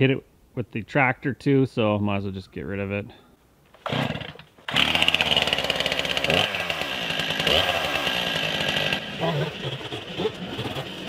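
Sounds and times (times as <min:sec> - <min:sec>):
chainsaw starting and revving: 0:03.8 - 0:11.0.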